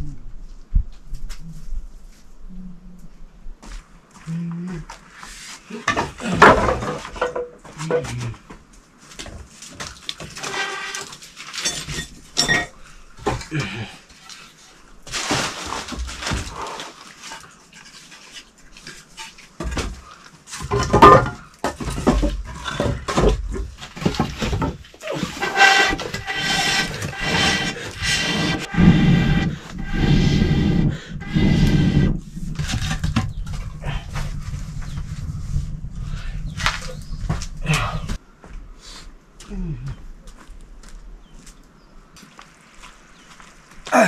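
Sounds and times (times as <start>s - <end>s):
knocks and handling noises: 15.1s - 28.7s.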